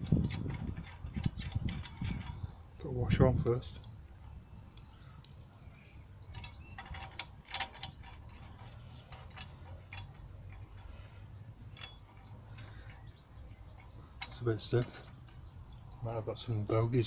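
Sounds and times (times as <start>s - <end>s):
metallic clicks of washer and bolt: 0.0s - 2.5s, 4.7s - 5.5s, 6.3s - 11.0s, 11.7s - 13.1s, 13.7s - 16.1s.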